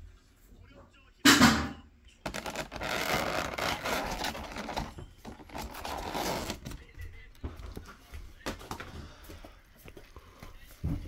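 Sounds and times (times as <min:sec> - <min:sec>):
plastic lid crackling and scraping: 0:02.3 - 0:06.9.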